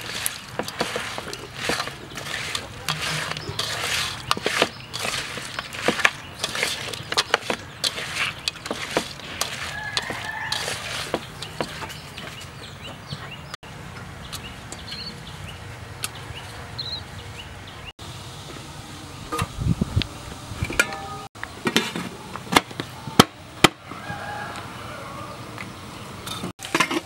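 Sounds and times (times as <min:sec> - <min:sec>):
wet squelching of meat mixed by hand: 0:00.0 - 0:12.6
metallic clanks of steamer tray and lid: 0:26.3 - 0:27.0.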